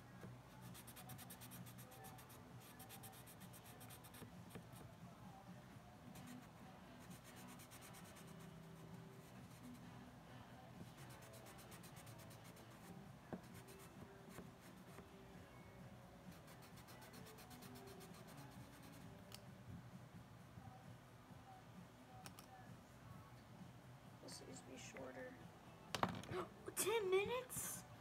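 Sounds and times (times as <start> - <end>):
marker scratching on cardboard: 0.6 - 4.8, 6.1 - 9.8, 10.8 - 15.0.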